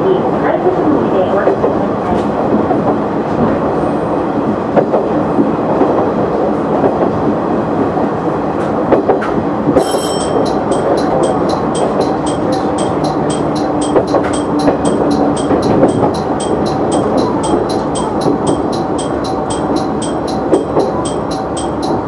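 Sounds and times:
railcar engine and wheels rumbling: 0.0 - 22.0
wheels clicking over rail joints: 8.6 - 22.0
bell ringing rapidly: 9.8 - 22.0.

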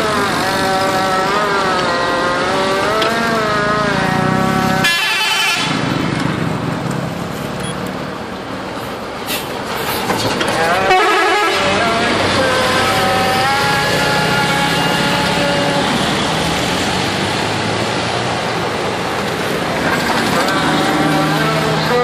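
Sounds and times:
bus multi-tone horn: 0.0 - 5.9, 10.6 - 16.1
road traffic engines: 0.0 - 22.0.

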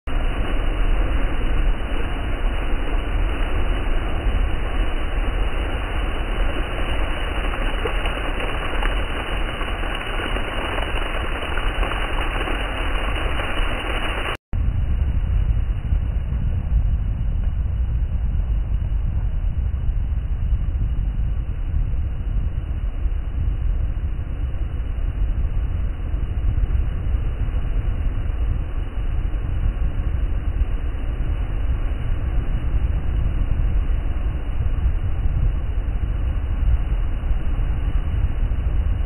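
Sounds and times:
heavy surf roaring on seawall: 0.1 - 14.4.

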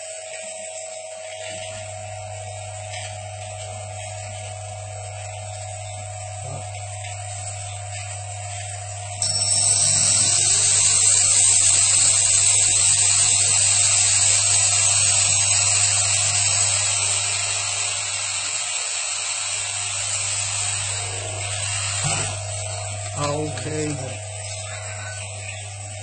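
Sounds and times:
motor hum: 0.0 - 26.0
drill bit grinding into glass: 9.2 - 25.7.

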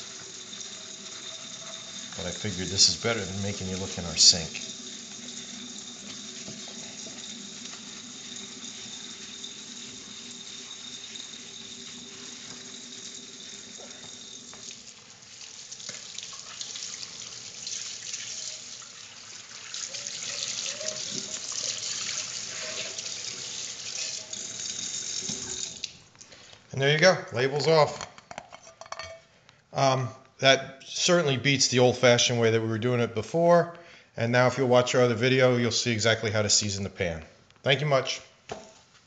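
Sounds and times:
faucet running: 0.0 - 26.1
water splashing off a frying pan: 12.4 - 26.0.

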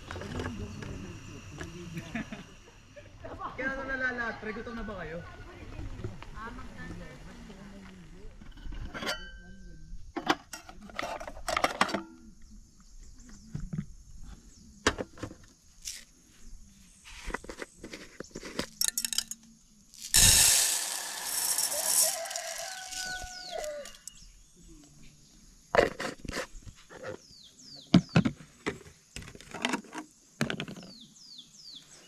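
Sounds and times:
loud hiss: 20.0 - 24.1
rooster crowing: 21.4 - 24.2.

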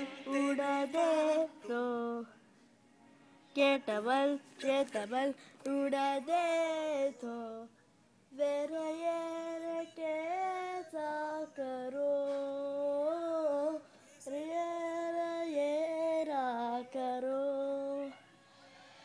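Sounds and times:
high voice singing: 0.0 - 2.4.

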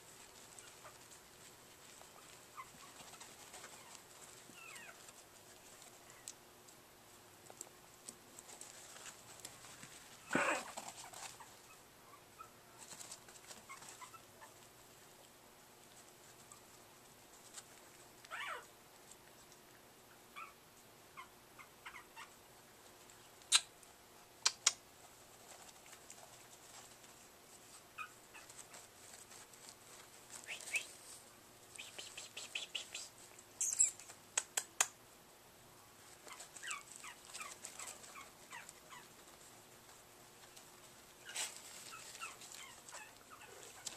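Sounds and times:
claws scrabbling on a pad: 0.0 - 6.4, 36.0 - 43.9
puppies yipping and squeaking: 0.3 - 1.2, 1.8 - 6.3, 10.3 - 14.6, 18.3 - 18.7, 20.4 - 20.6, 21.2 - 22.3, 27.6 - 29.4, 33.6 - 34.2, 36.1 - 39.4, 41.2 - 43.9.

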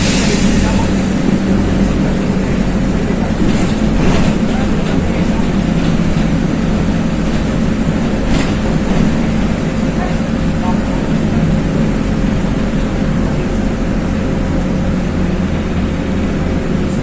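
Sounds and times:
bus diesel engine droning: 0.0 - 17.0
road and tyre noise: 0.0 - 17.0.

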